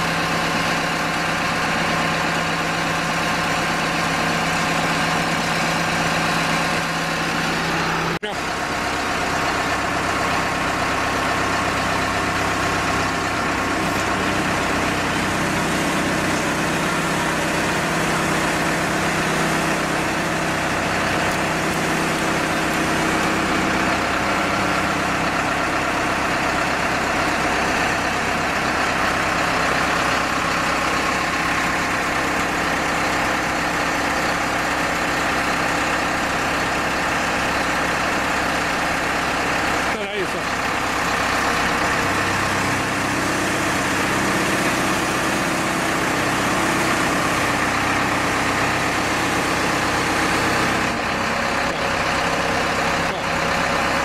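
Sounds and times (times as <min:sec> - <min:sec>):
hydraulic power unit engine humming: 0:00.0 - 0:54.0.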